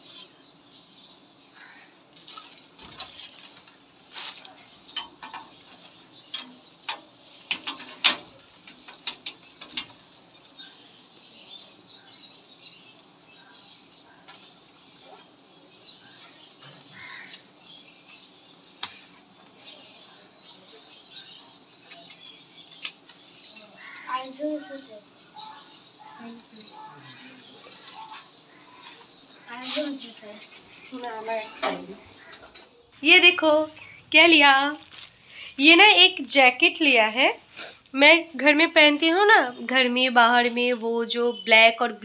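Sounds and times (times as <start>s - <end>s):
small metallic clicks and clinks: 4.9s - 13.2s, 13.8s - 14.8s
plastic wrapper rustling: 34.5s - 35.4s.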